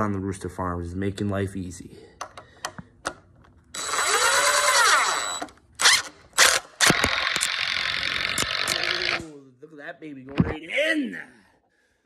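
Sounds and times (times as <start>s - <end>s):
cordless drill running: 3.8s - 9.3s.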